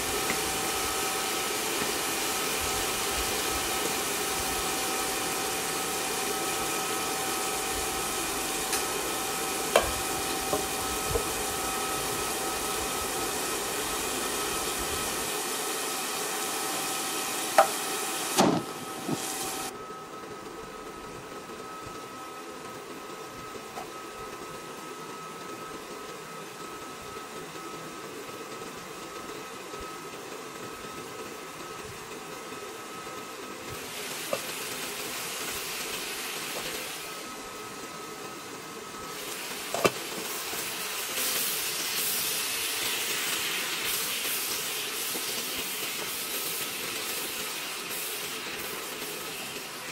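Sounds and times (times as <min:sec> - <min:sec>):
food sizzling in pans: 0:39.1 - 0:49.9.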